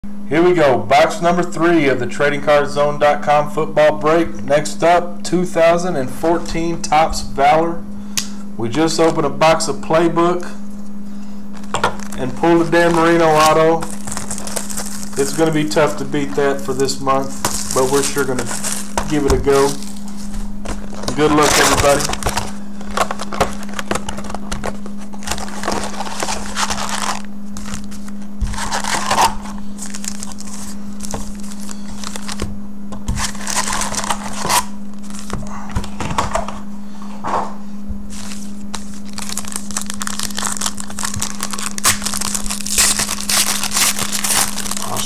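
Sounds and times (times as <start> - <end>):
steady low hum: 0.0 - 45.0
foil wrappers crinkling: 11.5 - 32.5, 33.1 - 35.4, 38.1 - 45.0
wrapper tearing open: 11.5 - 32.5, 33.1 - 35.3, 38.1 - 45.0.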